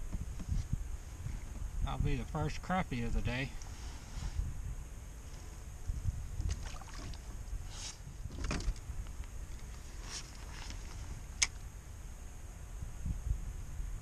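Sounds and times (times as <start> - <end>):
wind rumble on microphone: 0.0 - 14.0
short scrapes: 7.6 - 8.1.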